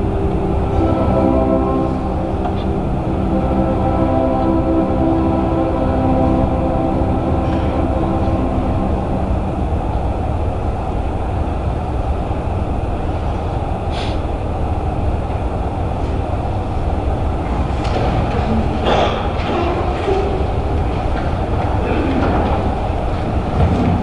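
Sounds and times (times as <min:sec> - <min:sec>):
string orchestra playing: 0:00.0 - 0:10.1.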